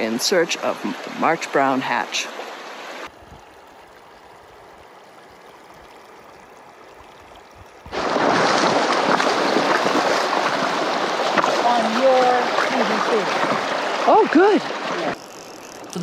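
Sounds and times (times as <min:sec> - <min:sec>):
river water rushing over cobbles: 0:00.0 - 0:16.0.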